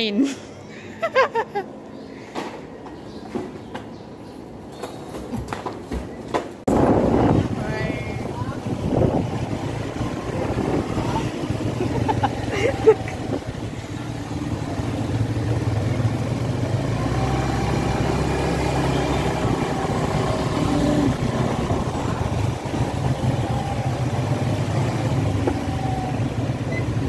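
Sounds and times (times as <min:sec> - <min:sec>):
street traffic: 0:00.0 - 0:27.0
motorcycle engine running: 0:06.7 - 0:27.0.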